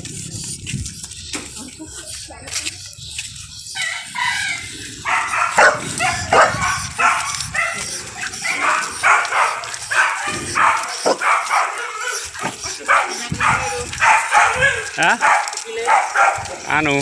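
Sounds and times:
dog barking: 5.0s - 16.7s.

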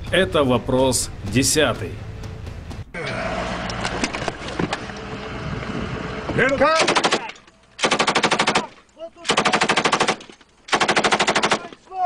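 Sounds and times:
machine gun automatic fire: 6.7s - 11.7s.

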